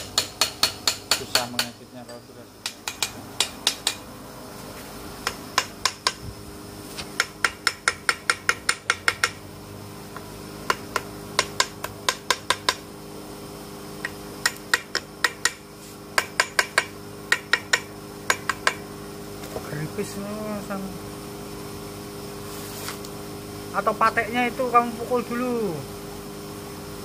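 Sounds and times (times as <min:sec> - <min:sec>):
hand tools tapping on metal: 0:00.0 - 0:04.0, 0:07.2 - 0:09.4, 0:10.2 - 0:12.8, 0:14.0 - 0:15.6, 0:16.2 - 0:18.8
steady hum: 0:00.0 - 0:27.0.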